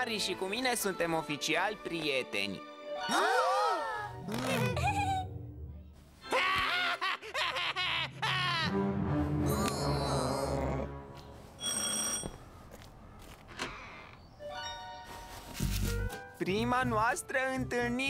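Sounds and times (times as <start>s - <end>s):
background music: 0.0s - 6.4s, 8.1s - 11.6s, 14.2s - 18.0s
child's mocking laughter: 4.5s - 5.3s
electronic doorbell ring: 11.6s - 12.5s.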